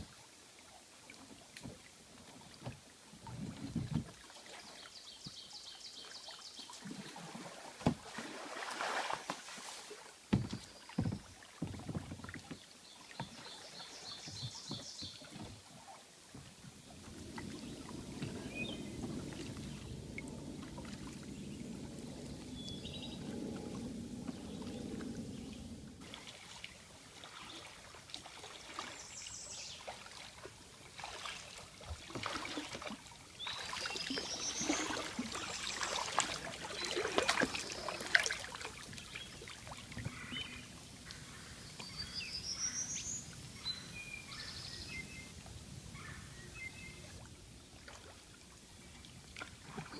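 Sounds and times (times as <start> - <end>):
paddle strokes splashing in water: 1.0 - 43.6, 45.2 - 49.9
low steady noise: 15.7 - 28.9.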